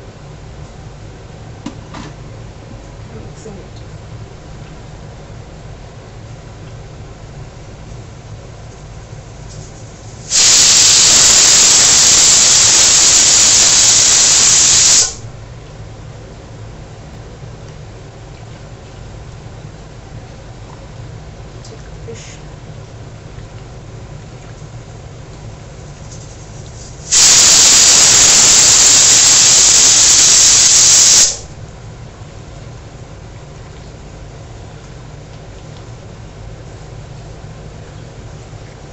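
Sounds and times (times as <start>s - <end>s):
loud steady hiss: 10.1s - 15.4s, 26.8s - 31.6s.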